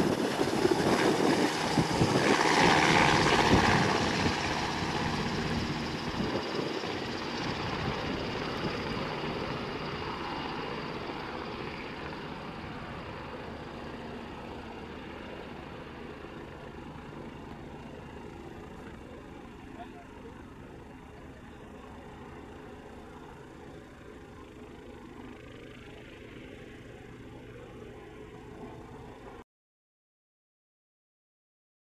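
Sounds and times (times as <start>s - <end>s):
helicopter rotor and turbines: 0.0s - 29.4s.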